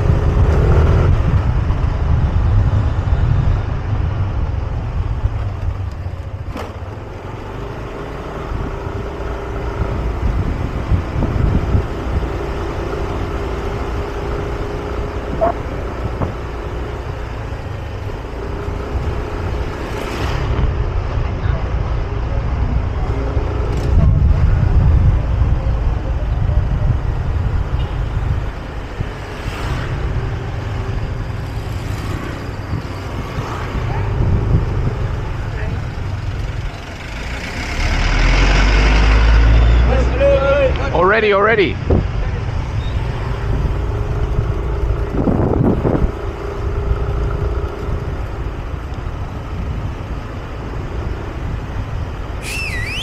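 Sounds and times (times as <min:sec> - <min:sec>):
wind buffeting microphone: 0:08.4 - 0:12.7, 0:15.1 - 0:17.9, 0:23.5 - 0:36.6, 0:41.8 - 0:53.0.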